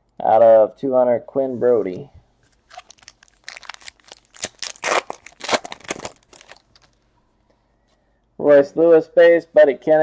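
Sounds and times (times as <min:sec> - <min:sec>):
foil wrapper tearing and crinkling: 0:02.6 - 0:07.0.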